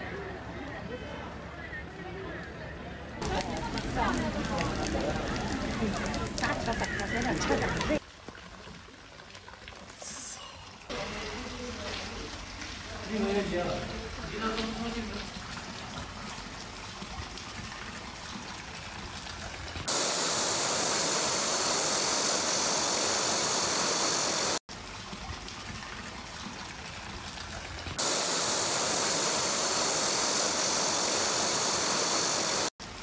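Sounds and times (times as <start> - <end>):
rushing floodwater: 3.2 - 9.0.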